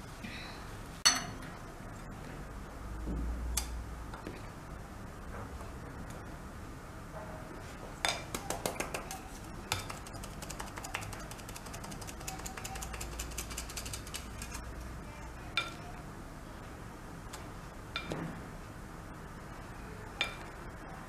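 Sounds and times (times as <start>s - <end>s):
flour sifter clicking: 8.3s - 14.6s.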